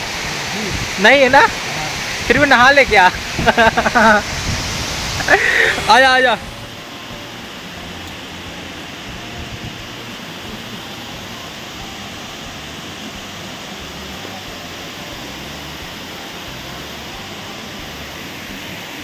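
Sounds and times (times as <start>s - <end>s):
waterfall roaring: 0.0s - 19.0s.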